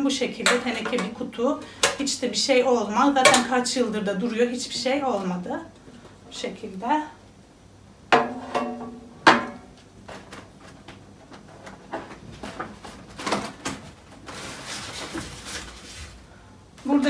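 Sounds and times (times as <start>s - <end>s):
rustle of items handled: 9.9s - 17.0s.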